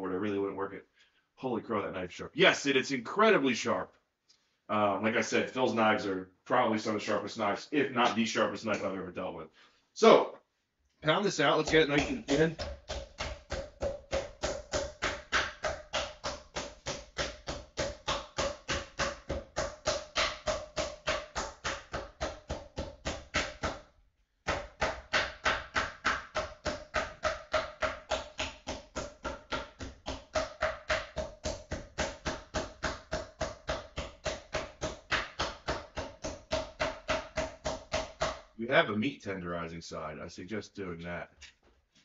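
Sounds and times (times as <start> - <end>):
meat mallet pounding on wooden board: 11.6 - 38.6.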